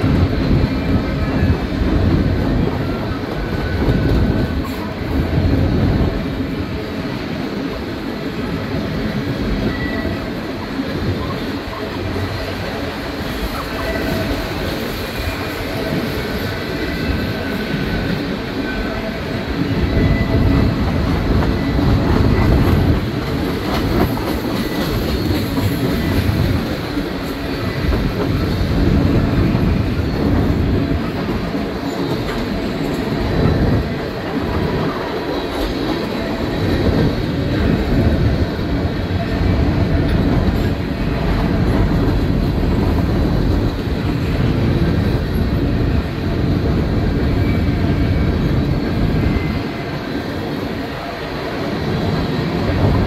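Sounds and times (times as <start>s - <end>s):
steel wheels rumbling on rail: 0.0s - 53.0s.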